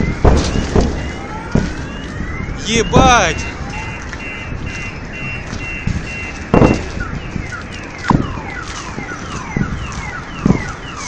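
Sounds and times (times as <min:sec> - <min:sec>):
sharp thumps: 0:00.0 - 0:02.2, 0:04.4 - 0:09.8
car alarms chirping: 0:00.0 - 0:11.0.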